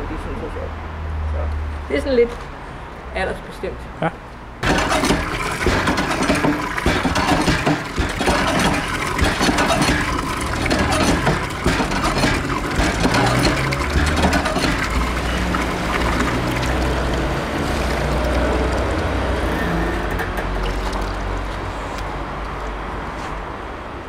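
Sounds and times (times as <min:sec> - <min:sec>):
water splashing along gutter: 0:04.6 - 0:23.2.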